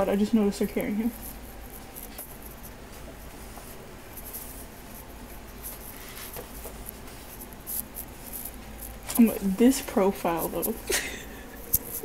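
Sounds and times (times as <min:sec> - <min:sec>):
paper pages rustling: 0:05.6 - 0:09.4.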